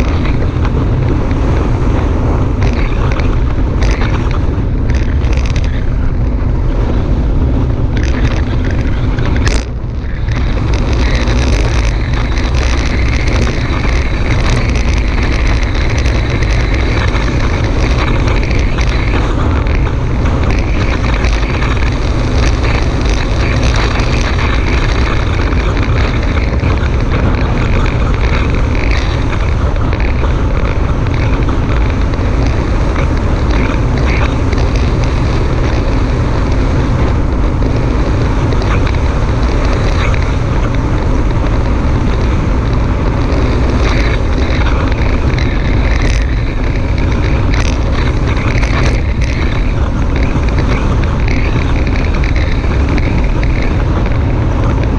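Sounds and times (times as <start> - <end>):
wind buffeting microphone: 0.0 - 54.9.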